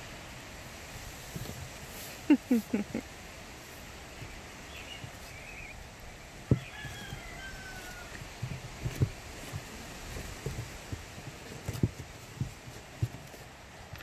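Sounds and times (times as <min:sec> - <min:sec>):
faint rooster crowing: 0:06.4 - 0:09.1.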